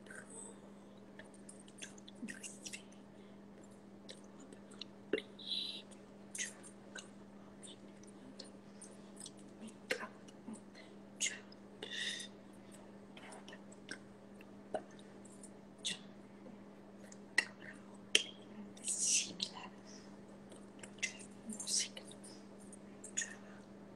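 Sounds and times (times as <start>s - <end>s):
low electrical hum: 0.0s - 23.9s
lip smacks and mouth clicks: 1.2s - 3.0s, 3.6s - 5.3s, 5.9s - 10.6s, 20.5s - 23.4s.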